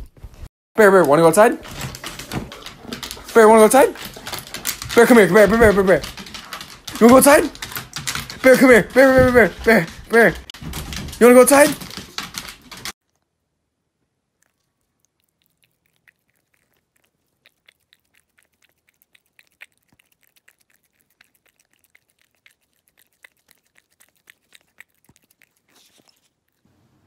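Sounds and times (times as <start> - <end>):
cat tongue licking clicks: 15.2 - 26.3.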